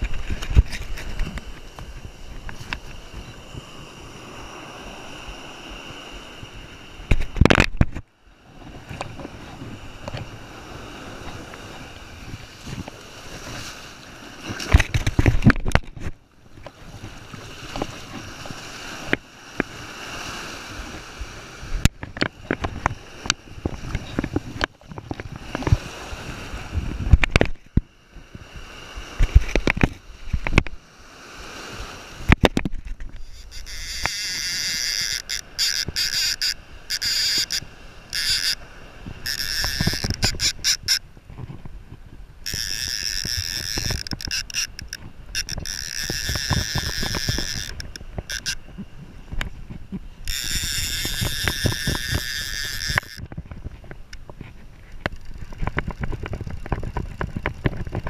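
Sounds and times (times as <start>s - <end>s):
wind buffeting microphone: 0.0s - 13.6s, 14.4s - 30.8s, 31.4s - 58.0s
ocean surf washing: 0.0s - 58.0s
fishing reel drag whirring: 32.9s - 41.0s, 42.4s - 48.7s, 50.2s - 53.3s, 55.0s - 58.0s.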